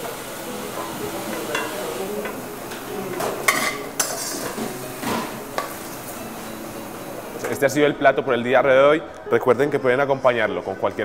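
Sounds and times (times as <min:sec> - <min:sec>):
metal spoon scraping a wok: 0:03.5 - 0:04.7.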